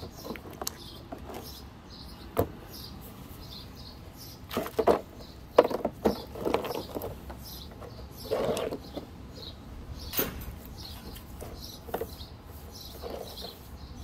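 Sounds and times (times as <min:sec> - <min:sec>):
rocks clunking together: 0:04.5 - 0:09.1.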